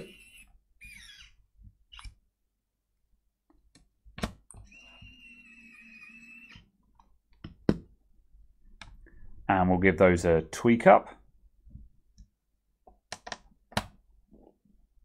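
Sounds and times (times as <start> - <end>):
electric screwdriver motor whining: 0.0 - 2.1, 4.6 - 6.7.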